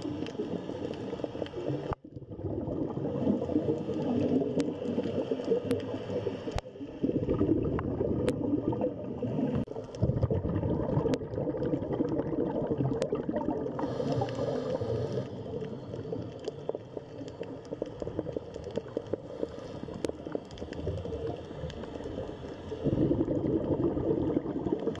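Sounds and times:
water bubbling underwater: 0:00.0 - 0:25.0
faint clicks: 0:03.7 - 0:06.7, 0:14.0 - 0:22.7.

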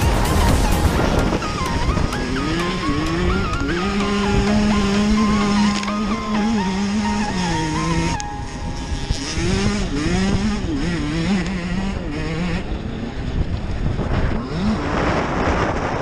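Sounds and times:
rushing noise: 0:00.0 - 0:10.3
dirt bike engine revving: 0:00.0 - 0:16.0.

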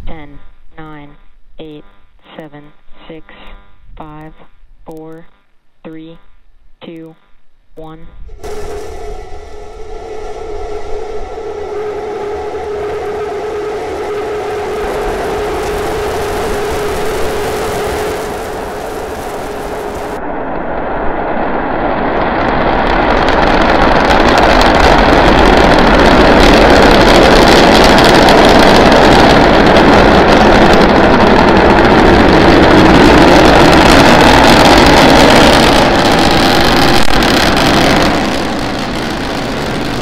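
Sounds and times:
rocket engines firing: 0:08.3 - 0:40.0.

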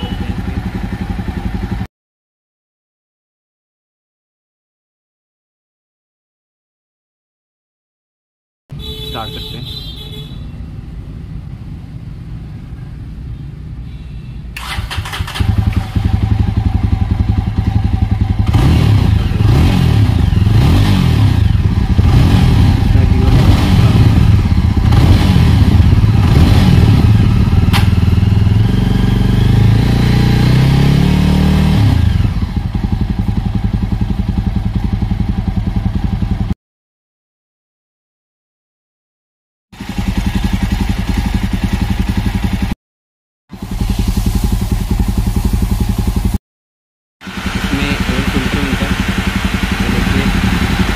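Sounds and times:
motorcycle engine idling and revving: 0:00.0 - 0:01.9, 0:14.4 - 0:36.6, 0:39.8 - 0:42.8, 0:43.5 - 0:46.4, 0:47.2 - 0:50.9.

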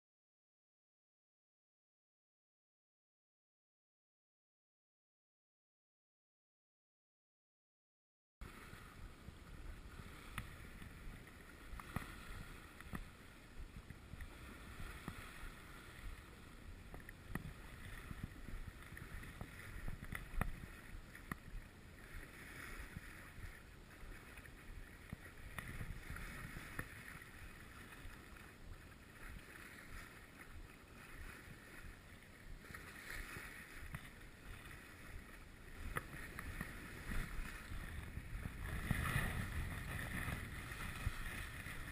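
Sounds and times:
water splashing along boat hull: 0:08.4 - 0:41.9
wind buffeting microphone: 0:35.2 - 0:41.9.

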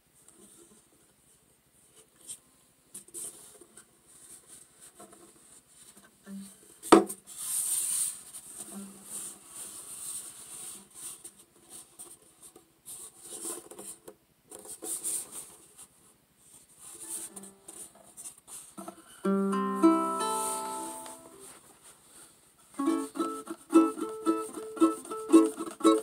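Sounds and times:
hands rubbing on ukulele body: 0:16.5 - 0:18.9, 0:19.9 - 0:26.0.

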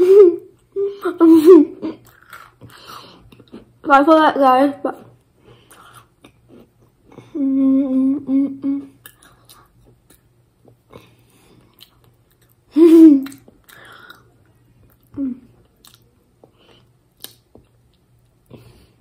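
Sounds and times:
girl humming: 0:00.0 - 0:02.0, 0:07.2 - 0:09.0, 0:12.7 - 0:13.4, 0:15.2 - 0:15.5
chewing and mouth clicks: 0:02.0 - 0:03.7, 0:09.0 - 0:12.6, 0:13.2 - 0:18.6.

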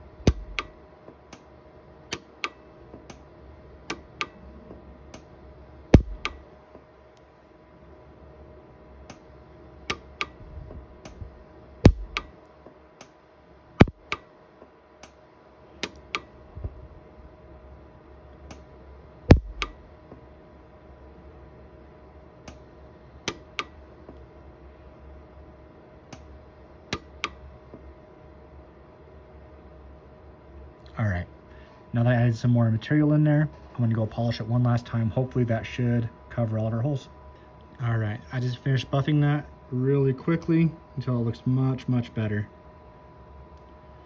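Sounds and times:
welder pulses snapping: 0:00.2 - 0:01.5, 0:05.9 - 0:06.4, 0:11.9 - 0:12.4, 0:13.8 - 0:14.3, 0:19.3 - 0:19.8.

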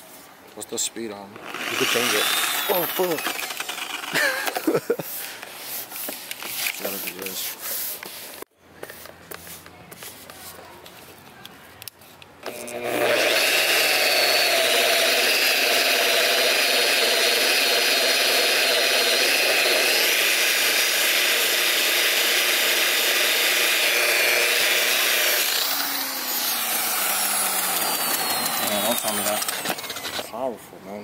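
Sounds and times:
rotary polisher whining: 0:01.4 - 0:05.3, 0:12.4 - 0:30.5.

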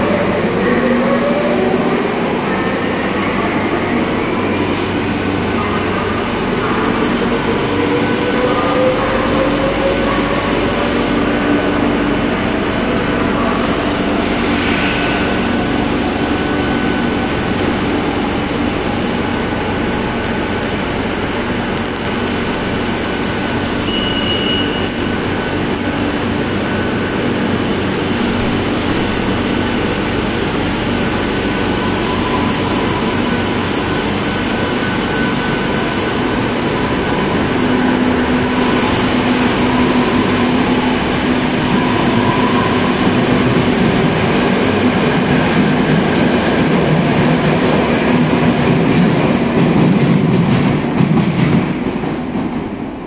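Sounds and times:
metro train running: 0:00.0 - 0:53.0
brief high tone: 0:23.8 - 0:25.0.

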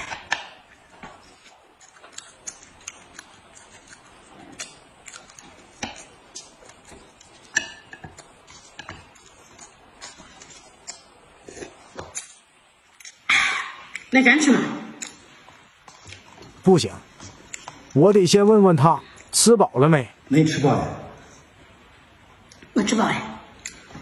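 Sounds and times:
chewing: 0:01.2 - 0:12.4
chopsticks tapping on plate and cup: 0:07.5 - 0:09.2.

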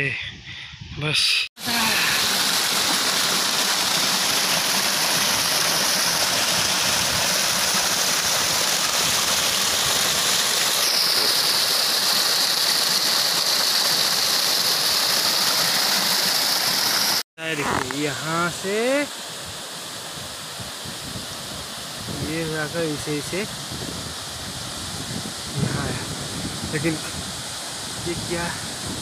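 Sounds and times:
water rushing over rocks: 0:01.6 - 0:18.9, 0:25.6 - 0:29.0.

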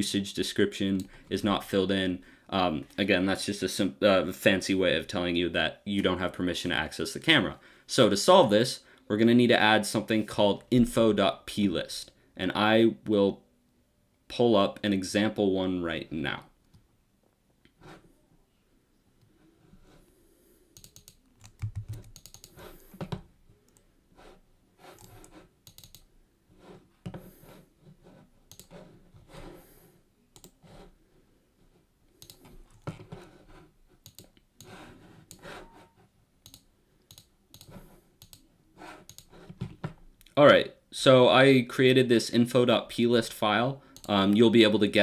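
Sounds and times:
computer keyboard typing: 0:20.8 - 0:22.6, 0:25.0 - 0:26.1, 0:28.5 - 0:28.7, 0:32.2 - 0:33.0, 0:34.0 - 0:34.3, 0:36.4 - 0:38.4, 0:39.1 - 0:39.3
mouse clicking: 0:20.8 - 0:22.6, 0:25.0 - 0:26.1, 0:28.5 - 0:28.8, 0:30.4 - 0:30.6, 0:32.2 - 0:33.0, 0:34.0 - 0:35.4, 0:36.4 - 0:38.4, 0:39.1 - 0:39.3.

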